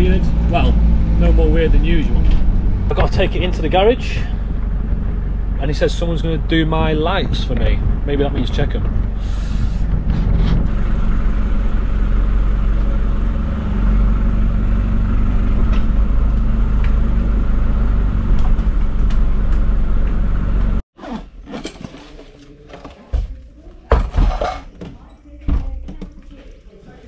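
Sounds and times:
bus engine and road drone: 0:00.0 - 0:20.8.

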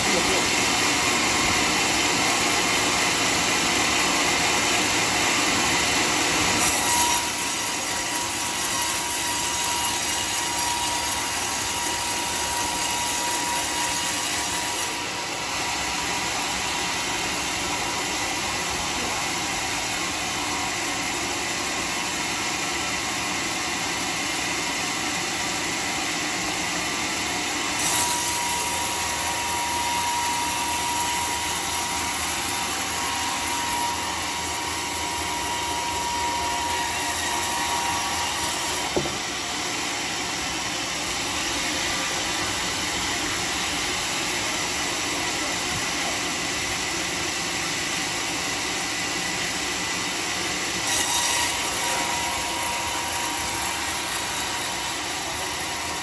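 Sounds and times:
band saw cutting wood: 0:00.0 - 0:56.0.

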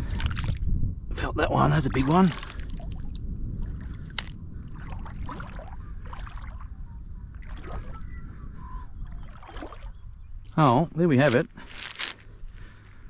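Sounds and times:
water sloshing around wading legs: 0:01.8 - 0:08.4, 0:09.0 - 0:10.6.

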